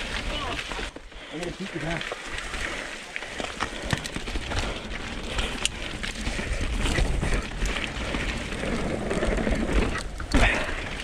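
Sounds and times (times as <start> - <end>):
bike tyres rolling over dirt: 0.0 - 11.0
low wind rumble: 2.4 - 11.0.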